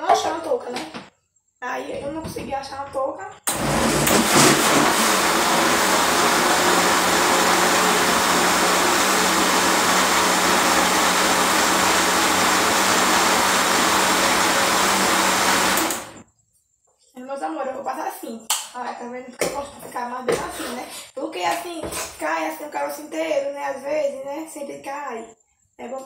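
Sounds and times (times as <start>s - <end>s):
electric blender grinding corn: 3.5s - 16.2s.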